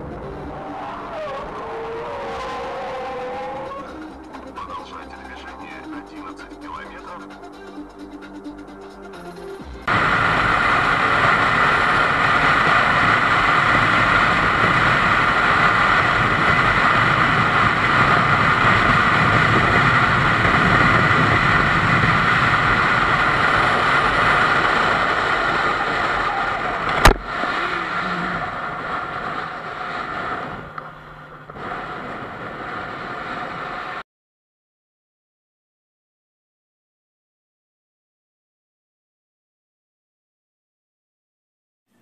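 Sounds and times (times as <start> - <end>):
motorcycle wind and engine rush: 0.0 - 4.6, 9.8 - 34.0.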